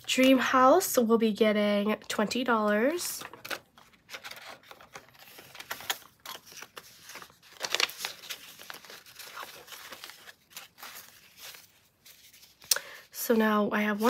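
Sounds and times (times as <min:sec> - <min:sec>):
banknotes rustling and flicking: 0:02.0 - 0:14.0
plastic sleeve crinkling: 0:03.2 - 0:12.8.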